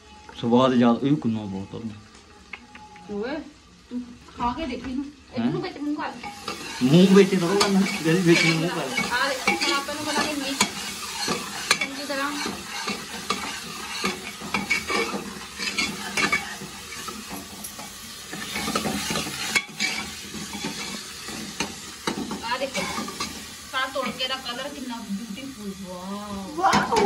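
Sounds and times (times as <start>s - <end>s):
food sizzling: 0.0s - 27.0s
ladle scraping a metal pot: 6.2s - 23.4s.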